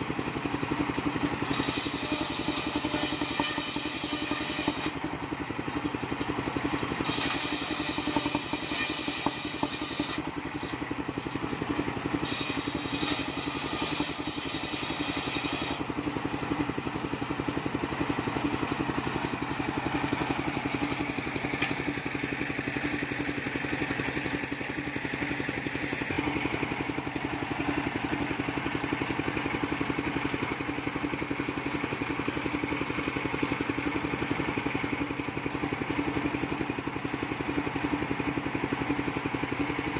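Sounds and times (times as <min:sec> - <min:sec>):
saw blade cutting wood: 0:01.4 - 0:05.1, 0:07.0 - 0:10.9, 0:12.2 - 0:15.9
circular saw humming: 0:01.4 - 0:05.3, 0:06.9 - 0:10.8, 0:12.1 - 0:15.9.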